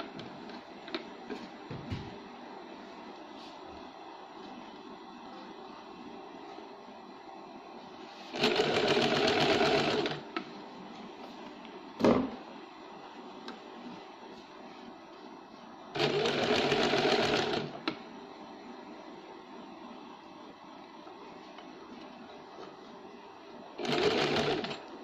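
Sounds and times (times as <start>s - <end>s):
sewing machine stitching: 8.3s - 10.2s, 16.0s - 17.8s, 23.8s - 24.8s.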